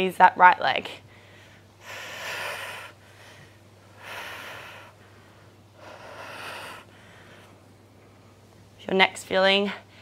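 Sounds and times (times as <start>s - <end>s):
woman breathing hard: 1.1s - 8.3s.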